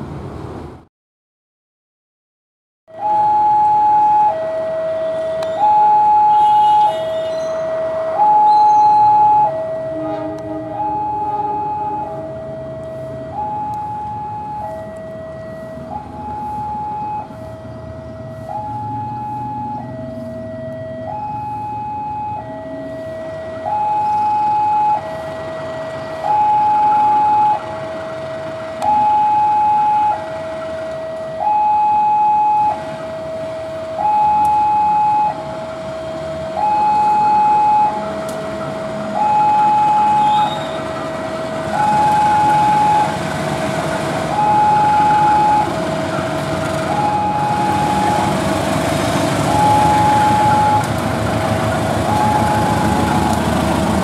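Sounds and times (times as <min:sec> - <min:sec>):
locomotive diesel engine: 0:02.9 - 0:54.0
level crossing two-tone alarm: 0:03.0 - 0:15.2, 0:17.9 - 0:25.1, 0:28.8 - 0:30.2, 0:31.4 - 0:33.4, 0:34.0 - 0:43.2, 0:44.3 - 0:48.5, 0:49.5 - 0:50.9, 0:52.0 - 0:53.4.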